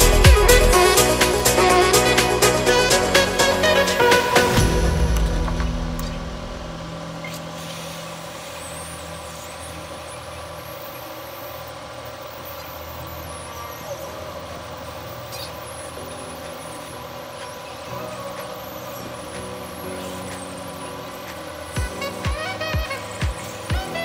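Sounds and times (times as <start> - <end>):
hot air gun blowing: 19.4 - 24.0.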